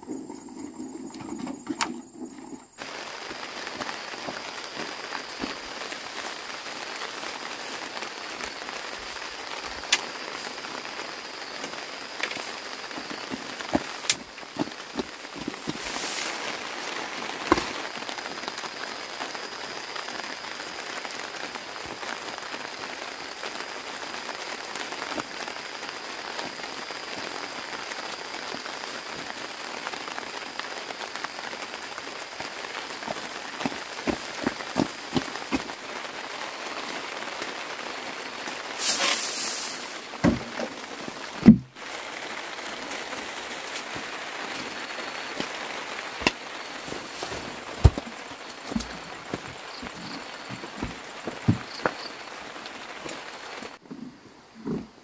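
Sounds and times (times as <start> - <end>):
light rain hissing: 0.0 - 55.0
heavy thumps: 41.4 - 41.7, 47.2 - 52.0.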